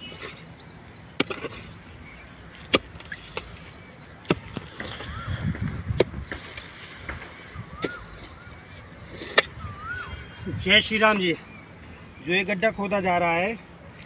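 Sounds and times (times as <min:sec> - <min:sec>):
hoe striking hard soil: 0:01.2 - 0:01.7, 0:02.7 - 0:03.6.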